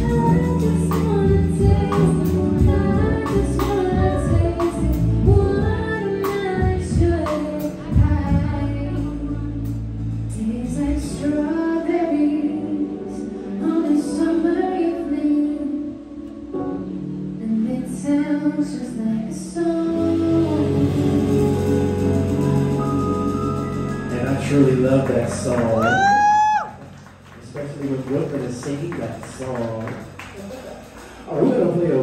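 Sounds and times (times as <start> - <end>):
live band playing: 0.0 - 14.6, 19.9 - 32.0
woman singing: 0.0 - 16.2, 17.4 - 23.8.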